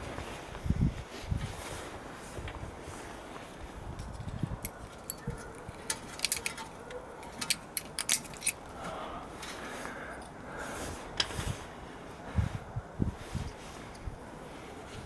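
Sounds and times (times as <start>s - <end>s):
metallic clicks and clinks: 3.9s - 8.7s.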